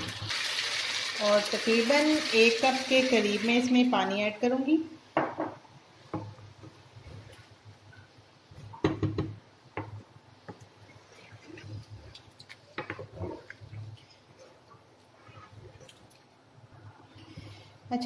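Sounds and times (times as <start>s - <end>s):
spatula stirring food in gravy: 9.8s - 17.7s.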